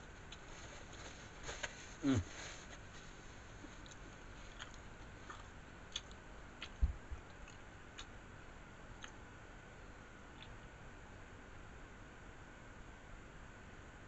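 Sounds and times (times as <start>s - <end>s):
mouth sounds of eating: 1.5s - 2.9s, 3.6s - 8.2s.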